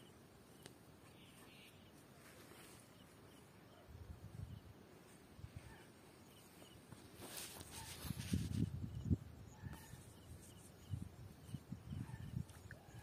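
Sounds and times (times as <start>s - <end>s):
faint high chirp: 0.0s - 4.7s, 5.6s - 6.9s.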